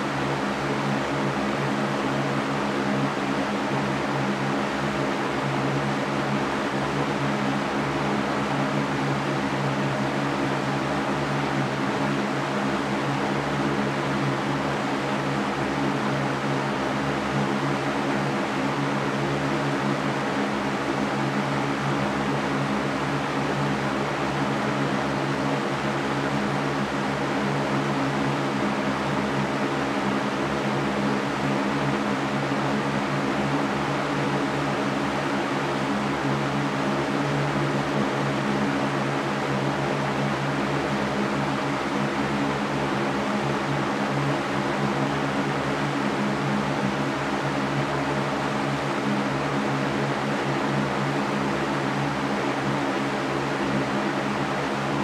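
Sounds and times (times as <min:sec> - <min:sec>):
floor fan running: 0:00.0 - 0:55.0.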